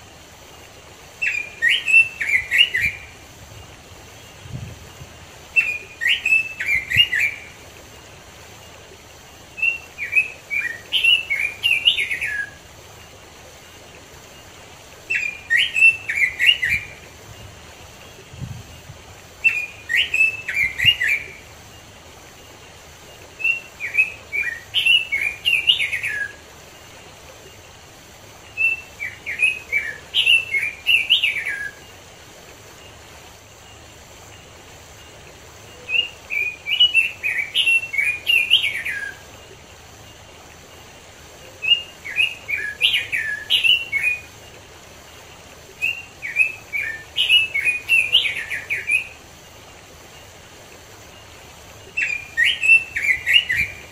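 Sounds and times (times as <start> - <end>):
bird singing warbling whistles: 1.2 - 3.2, 4.2 - 7.6, 9.5 - 12.6, 15.1 - 17.0, 19.4 - 21.4, 23.4 - 26.4, 28.5 - 31.9, 35.7 - 39.4, 41.4 - 44.3, 45.8 - 49.2, 51.1 - 53.9.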